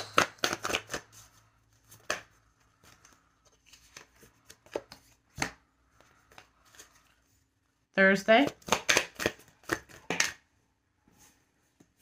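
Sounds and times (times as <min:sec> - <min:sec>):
cards being shuffled: 0:00.0 - 0:07.3, 0:08.4 - 0:10.4.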